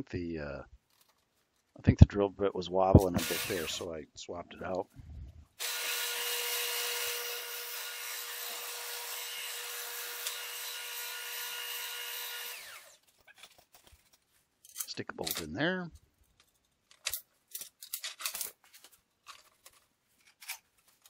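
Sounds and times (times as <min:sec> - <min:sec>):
drill press drilling aluminum: 0:03.1 - 0:03.8, 0:05.6 - 0:13.0.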